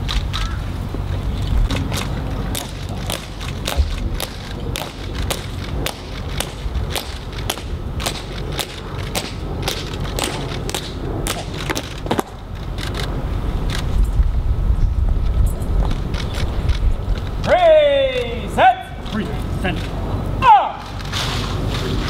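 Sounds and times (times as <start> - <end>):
marching footsteps on stone: 1.6 - 13.1.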